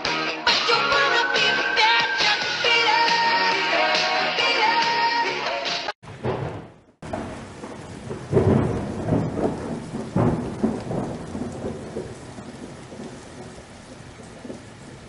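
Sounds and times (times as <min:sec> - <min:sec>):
thunderclaps rolling: 0:06.0 - 0:15.0
steady rain: 0:06.8 - 0:15.0.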